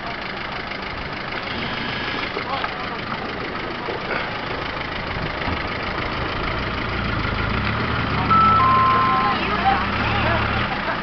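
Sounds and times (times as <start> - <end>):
off-road vehicle engine running: 0.0 - 11.0
two-pitch tone: 8.2 - 9.4.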